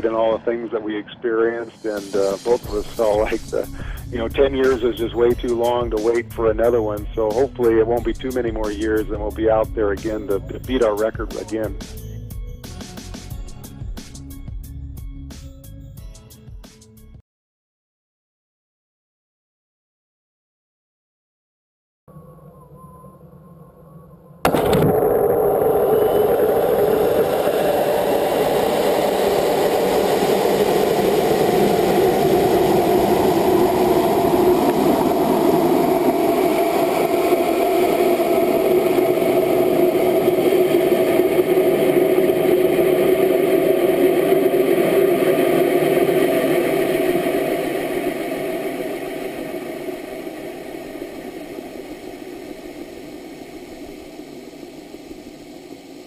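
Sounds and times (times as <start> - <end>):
rocket motor roaring: 1.8 - 12.1, 23.5 - 56.0.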